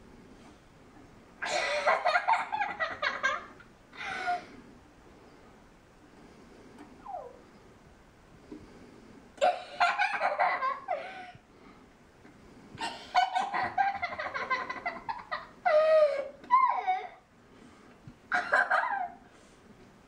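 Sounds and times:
girl giggling: 1.4 - 4.5, 9.4 - 11.4, 12.8 - 17.2, 18.3 - 19.2.

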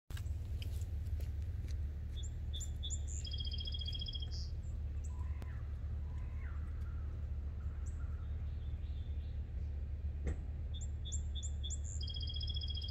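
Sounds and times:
songbirds calling: 0.1 - 12.9
steady low rumble: 0.1 - 12.9
songbird trilling: 2.2 - 9.4, 10.7 - 12.9.

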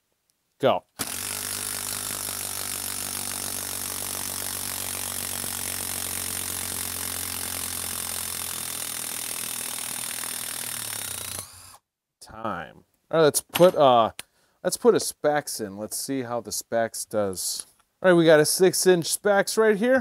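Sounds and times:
impact driver hammering: 1.0 - 11.7.

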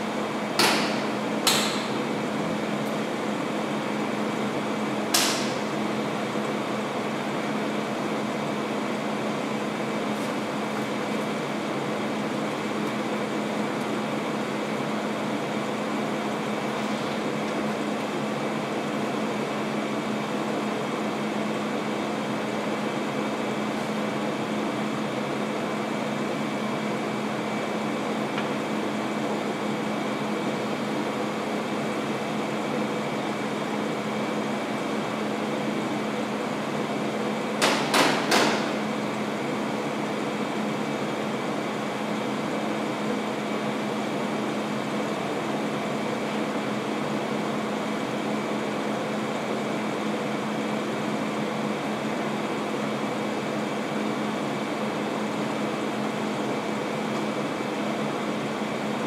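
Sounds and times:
air conditioning hum: 0.0 - 59.0
sharp knocks: 37.6 - 38.7.

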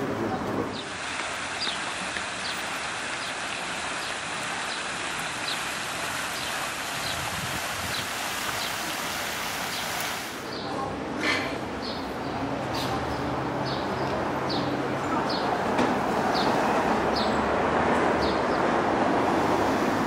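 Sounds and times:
fountain water splashing: 0.0 - 10.5, 18.4 - 20.0.

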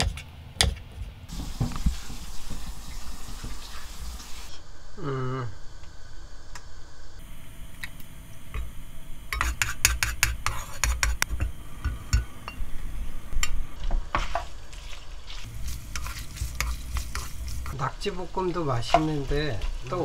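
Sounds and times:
wooden spoon scraping a wok: 9.4 - 11.2, 13.8 - 20.0.

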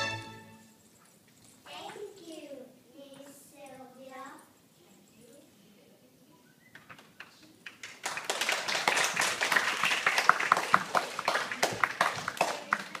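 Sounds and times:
people clapping: 7.0 - 13.0.

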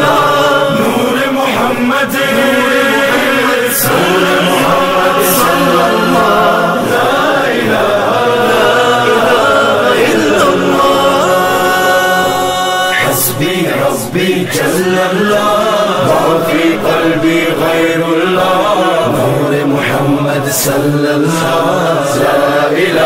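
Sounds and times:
chorus of voices chanting: 0.0 - 23.0.

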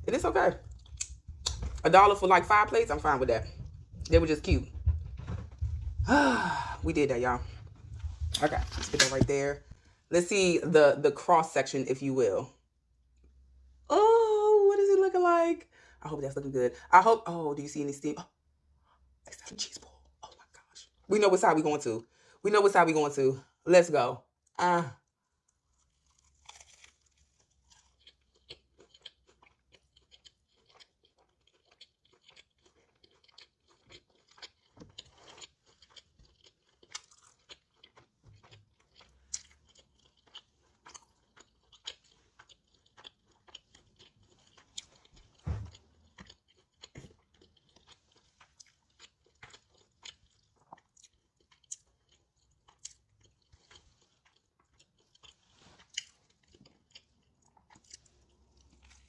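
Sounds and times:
person chewing crispy food: 0.5 - 1.8, 25.0 - 59.0
low thump: 4.0 - 6.1, 45.4 - 45.8.

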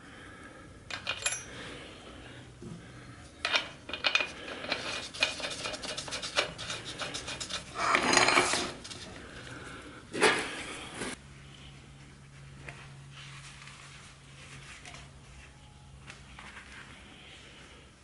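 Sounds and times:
small metal parts clinking: 0.9 - 1.6
metallic rubbing scrape: 4.2 - 9.1.

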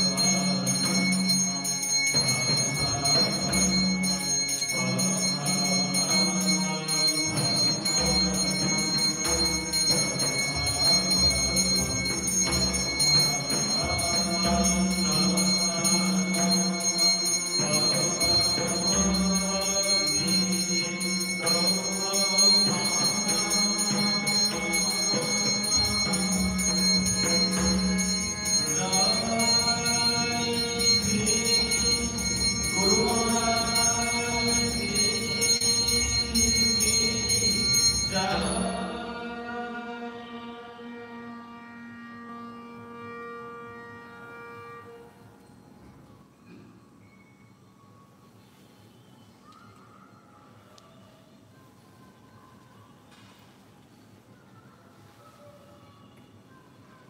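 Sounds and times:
hand bell ringing: 0.0 - 38.9.

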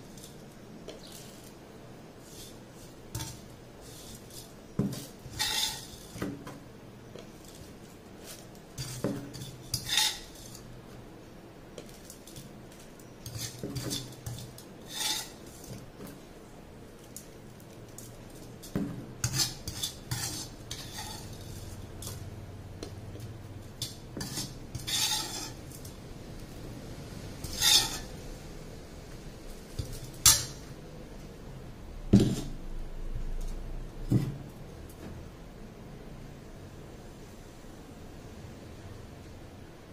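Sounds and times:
metal spoon scraping a pan: 0.0 - 1.6, 2.2 - 10.9, 11.8 - 16.3, 17.9 - 26.0, 27.3 - 28.3, 29.5 - 30.8.

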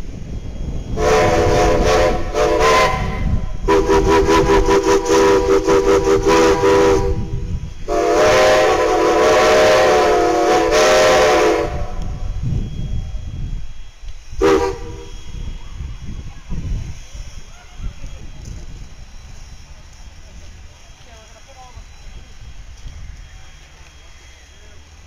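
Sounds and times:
low rumble of steam engines: 0.0 - 25.0
steam locomotive whistle blasts: 0.3 - 16.3.

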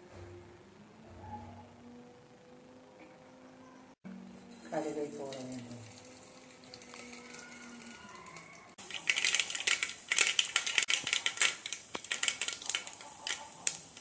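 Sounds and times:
mustard seeds popping in oil: 5.0 - 14.0.

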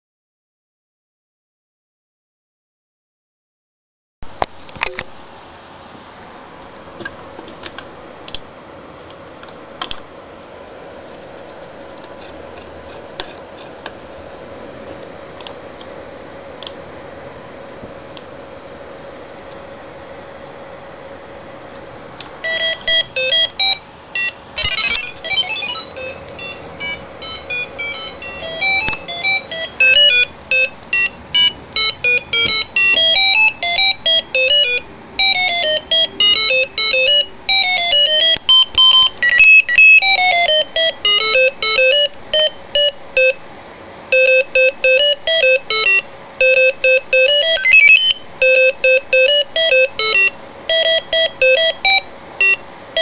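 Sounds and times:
square-wave beeping melody: 22.4 - 43.4, 44.1 - 53.0.

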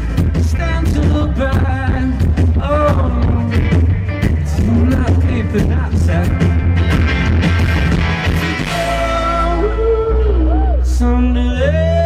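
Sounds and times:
drums and cymbals: 0.0 - 9.9
electric guitar: 0.0 - 12.0
low bass: 0.0 - 12.0.

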